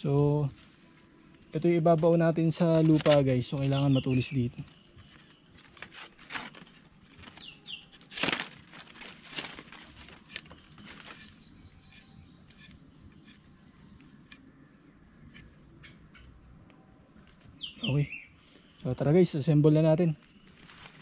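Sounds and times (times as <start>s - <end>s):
machete cutting wooden stick: 10.1s - 13.5s, 15.2s - 15.6s.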